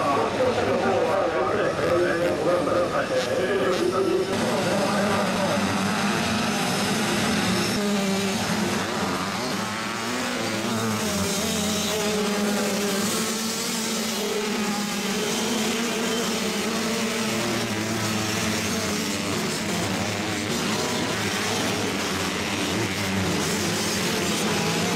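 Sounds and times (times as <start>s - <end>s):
motocross bike engines revving: 0.0s - 24.9s.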